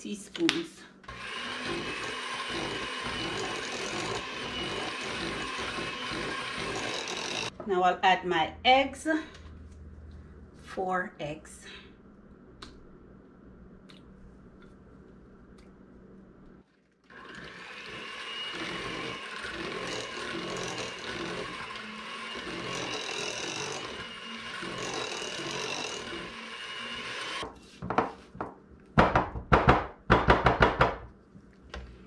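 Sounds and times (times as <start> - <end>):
electric hand mixer whine: 1.1 - 7.5, 17.1 - 27.5
spatula scraping mixing bowl: 1.2 - 7.6, 17.3 - 27.8.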